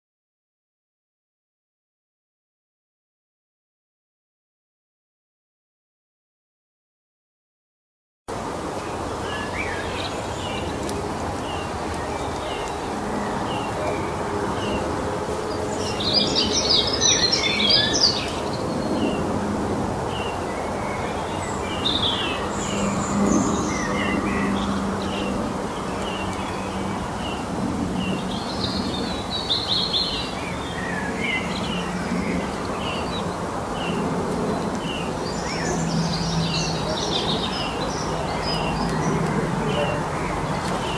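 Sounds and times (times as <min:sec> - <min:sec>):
birds twittering: 0:08.8 - 0:19.4, 0:20.0 - 0:40.9.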